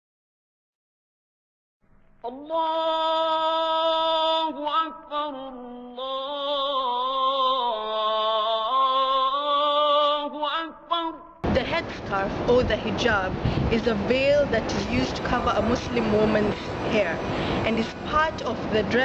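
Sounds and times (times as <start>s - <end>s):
solo voice chanting: 2.2s - 11.4s.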